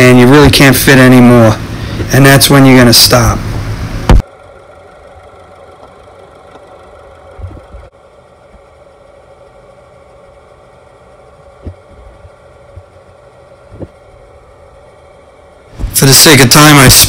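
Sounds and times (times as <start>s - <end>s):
car engine idling: 0.1s - 17.0s
low thumps: 4.0s - 4.2s, 15.7s - 16.0s.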